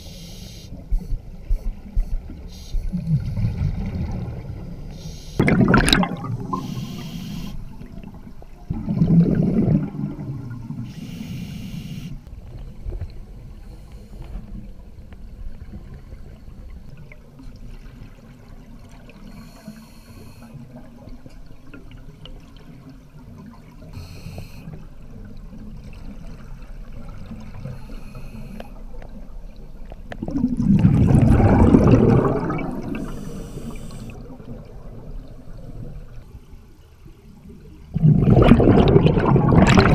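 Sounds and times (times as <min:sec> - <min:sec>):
low rumble of water: 0:00.0 - 0:39.9
exhaled air bubbling: 0:01.4 - 0:13.5, 0:30.0 - 0:36.2, 0:37.5 - 0:39.9
regulator inhalation hisses: 0:06.5 - 0:07.6, 0:10.9 - 0:12.2, 0:33.0 - 0:34.2.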